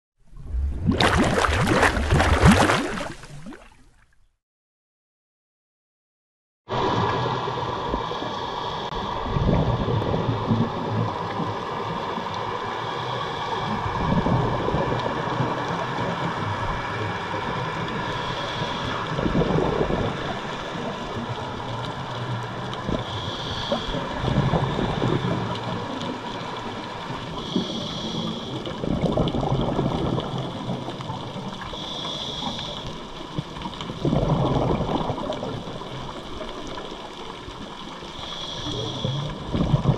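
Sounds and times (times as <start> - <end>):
exhaled bubbles gurgling underwater: 0.2 - 3.9, 6.7 - 39.9
regulator inhale hiss: 18.0 - 19.2, 23.0 - 24.2, 27.2 - 28.7, 31.6 - 33.1, 38.0 - 39.5.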